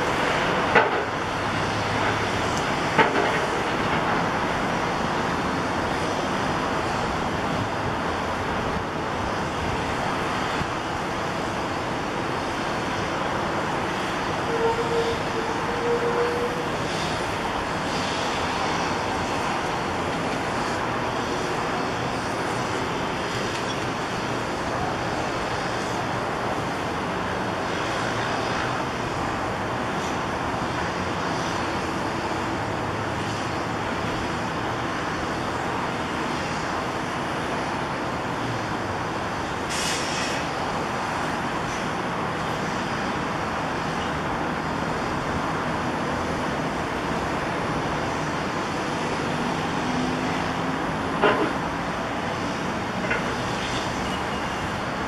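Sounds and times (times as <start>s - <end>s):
excavator diesel engine running: 0.0s - 55.0s
brief hiss: 39.7s - 40.5s.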